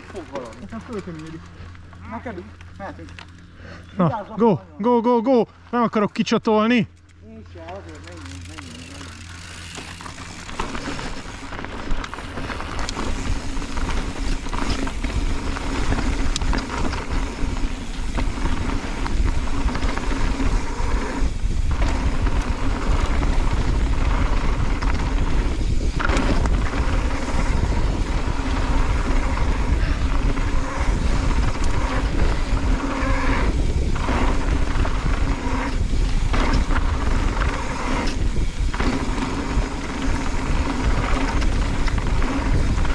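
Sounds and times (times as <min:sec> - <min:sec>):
tyres rolling over gravel: 0:00.0 - 0:04.2, 0:07.4 - 0:42.9
bike rattling: 0:00.0 - 0:04.9, 0:05.6 - 0:42.9
wind buffeting microphone: 0:12.1 - 0:42.9.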